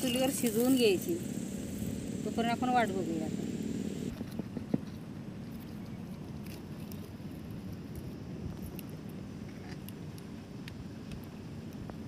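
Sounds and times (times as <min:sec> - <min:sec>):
wood fire crackling: 0:00.0 - 0:04.2.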